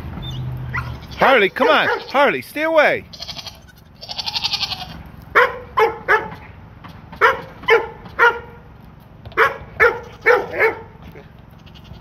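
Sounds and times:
goat bleating: 0.7s - 5.1s, 9.8s - 12.0s
dog barking: 1.6s - 2.2s, 5.3s - 6.4s, 7.2s - 8.6s, 9.4s - 11.3s.

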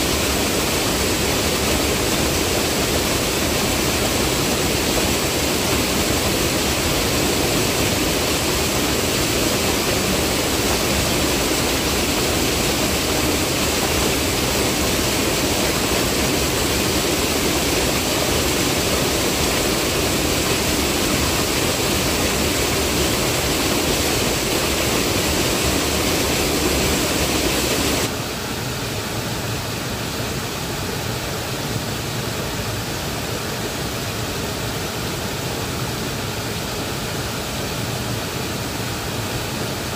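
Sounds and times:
stream rushing over boulders: 0.0s - 39.9s.

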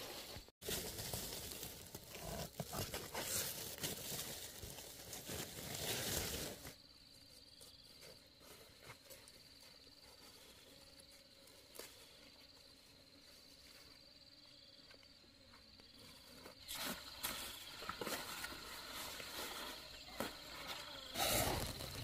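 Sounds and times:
rustling and crinkling handling: 0.0s - 6.8s
high insect trill: 5.8s - 22.0s.

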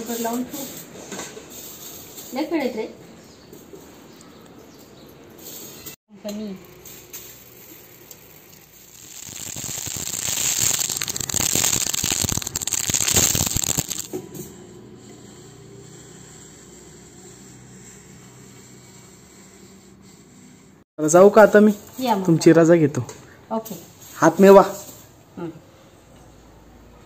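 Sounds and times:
grains poured into metal pot: 6.5s - 14.1s.

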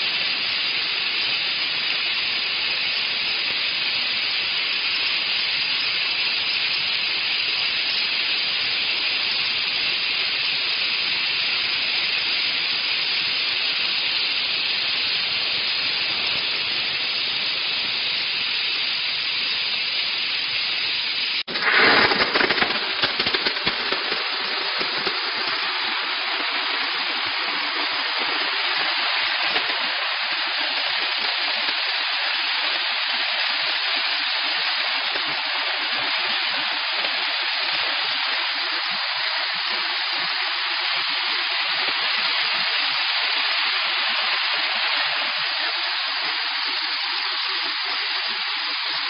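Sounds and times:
steam jet hissing: 0.0s - 49.0s.

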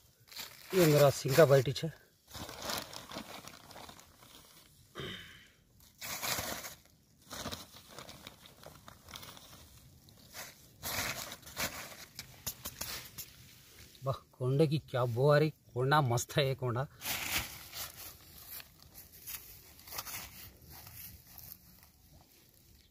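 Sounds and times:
plastic bag crinkling: 0.3s - 4.8s, 6.0s - 12.4s.

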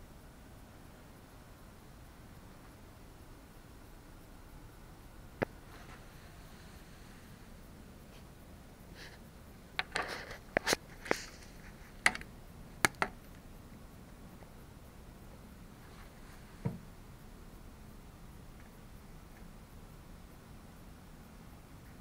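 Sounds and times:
sharp clicks and taps: 9.8s - 11.4s, 12.0s - 13.4s
soft low thump: 16.6s - 16.8s.

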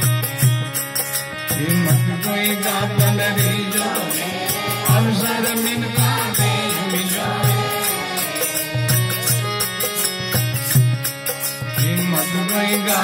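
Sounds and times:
fast percussion beat: 0.0s - 13.0s
harmonium chords: 0.0s - 13.0s
man singing: 1.4s - 9.8s, 11.7s - 13.0s.

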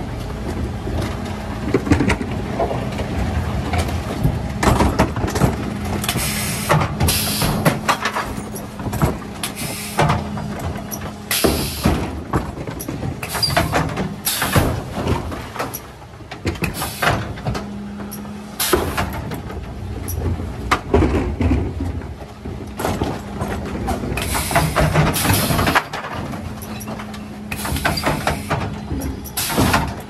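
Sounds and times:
truck engine running: 0.0s - 30.0s
bin banging and clattering: 20.3s - 30.0s.

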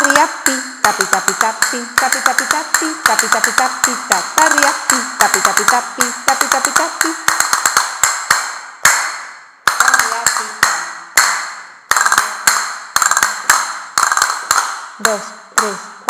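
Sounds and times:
castanets clicking: 0.0s - 15.8s.

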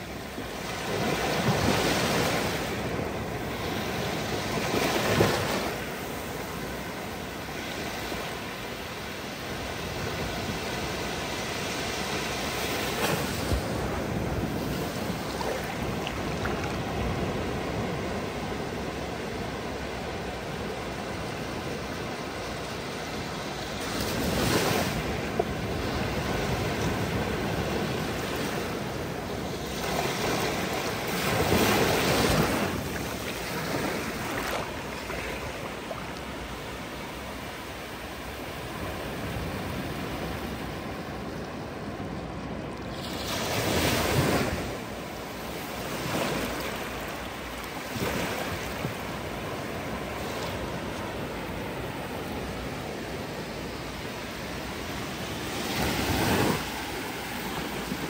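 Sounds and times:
waves breaking: 0.0s - 58.0s.

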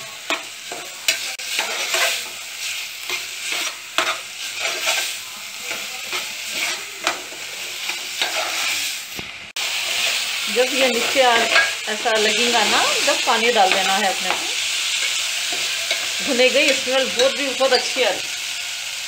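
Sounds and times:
lentils sizzling in oil: 0.0s - 19.0s
spoon scraping metal pot: 6.1s - 8.7s.

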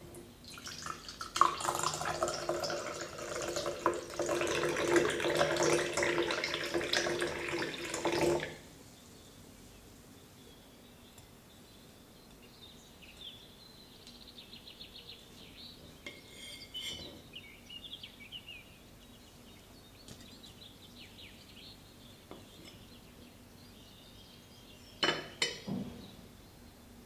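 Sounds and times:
faint bird chirps: 9.0s - 26.9s.

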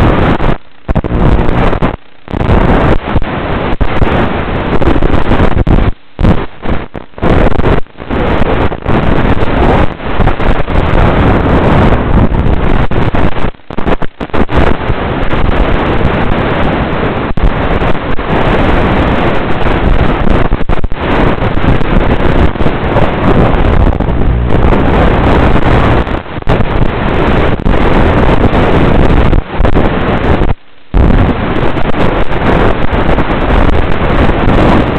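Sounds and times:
wind rush: 0.0s - 34.9s
motor propeller noise: 0.1s - 2.9s, 10.6s - 13.4s, 21.2s - 28.2s.

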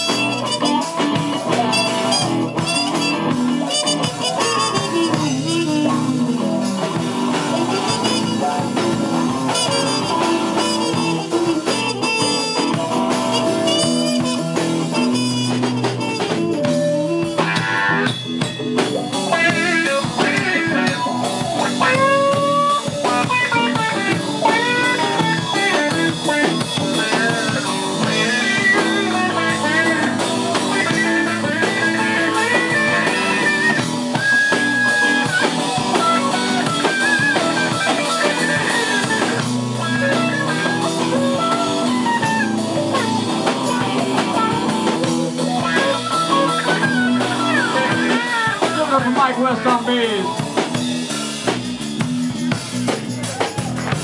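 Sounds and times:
drum kit: 0.0s - 54.0s
electric guitar solo with bent notes: 0.0s - 54.0s
low band backing: 0.0s - 54.0s.

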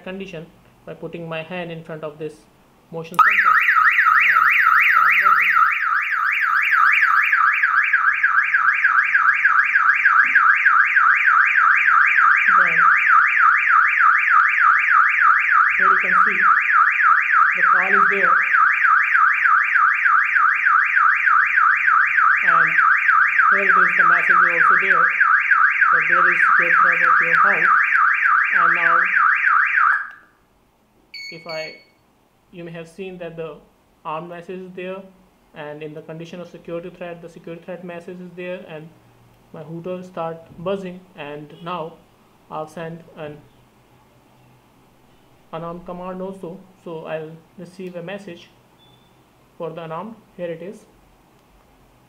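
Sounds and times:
warbling alarm siren: 3.2s - 30.4s.

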